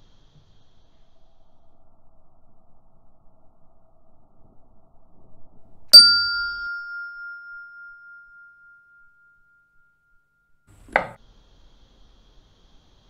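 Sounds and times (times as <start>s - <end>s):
bell ding: 6.0s - 9.9s.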